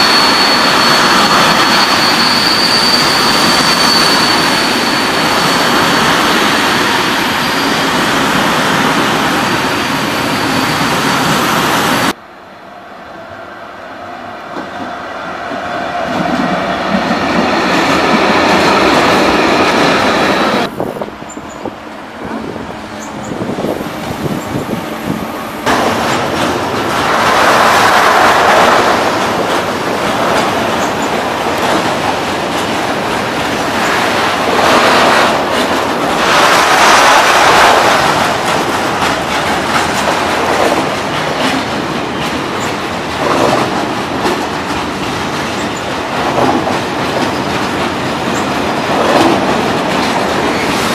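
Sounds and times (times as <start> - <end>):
train wheels clattering over rail joints: 25.7 - 50.9.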